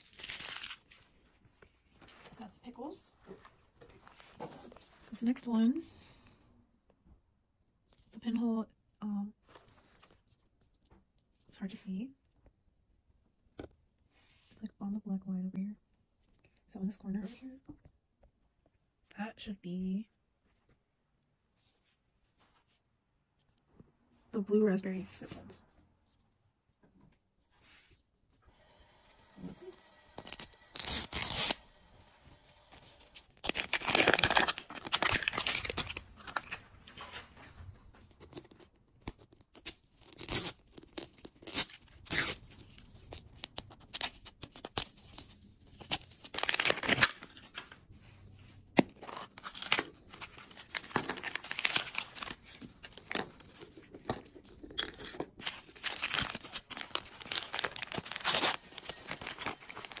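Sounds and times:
plastic packaging tearing and rustling: 0.0 - 1.2, 30.2 - 31.6, 32.7 - 37.5, 38.2 - 47.8, 48.8 - 60.0.

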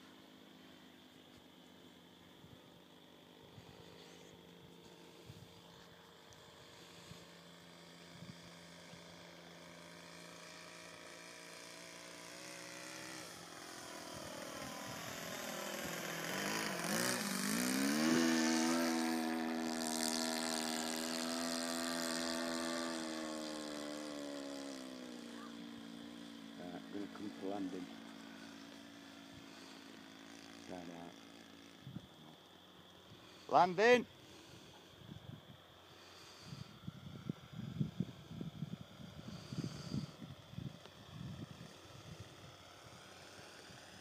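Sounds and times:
model aeroplane engine buzzing: 0.0 - 44.0.

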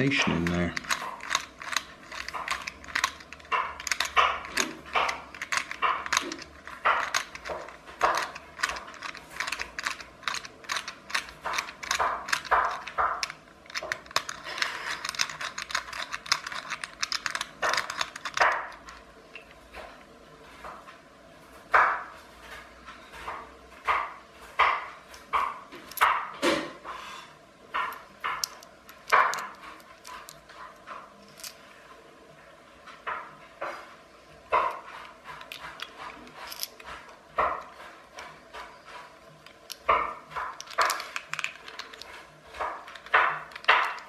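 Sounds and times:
rapid plastic clicks and rattles: 0.1 - 19.1, 34.5 - 44.0.

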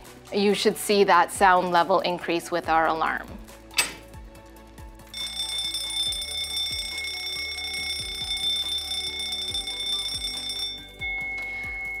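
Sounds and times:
fire alarm bell ringing: 5.1 - 12.0.

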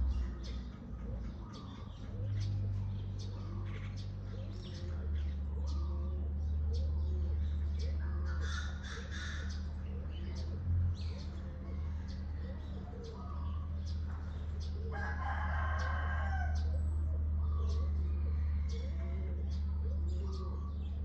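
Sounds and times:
small birds chirping: 0.0 - 21.0
steady low hum: 0.0 - 21.0
rooster crowing: 14.9 - 16.8.

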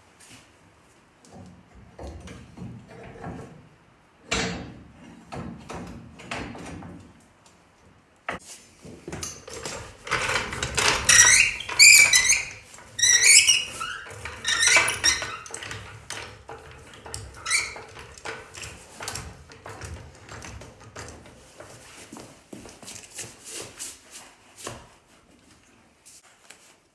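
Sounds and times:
floor jack squeaking: 9.4 - 21.2.

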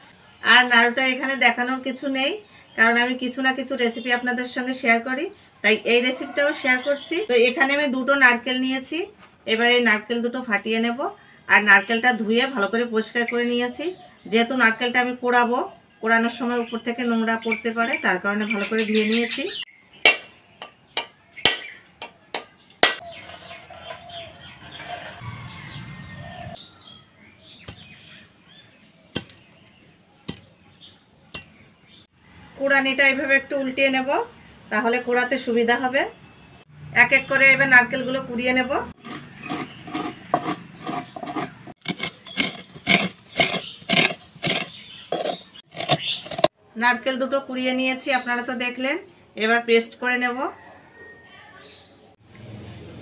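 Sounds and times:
coconut scraping rhythmic rasping: 39.0 - 46.6.

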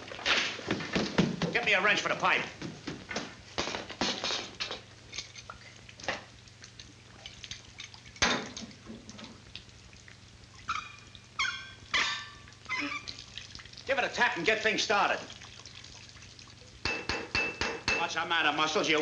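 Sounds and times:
water trickling and dripping: 4.8 - 18.2.

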